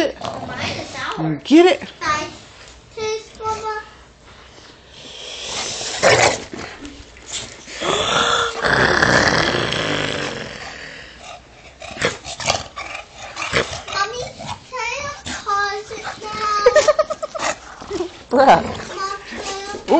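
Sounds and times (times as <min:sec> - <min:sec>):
dog growling in play: 0:00.0 - 0:01.1, 0:05.4 - 0:06.8, 0:07.4 - 0:16.4, 0:17.2 - 0:19.7.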